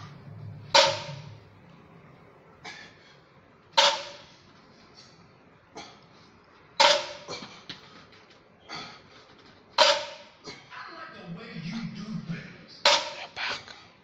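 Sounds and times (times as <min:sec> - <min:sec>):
barbell weight plates clanking: 0:00.0 - 0:01.4.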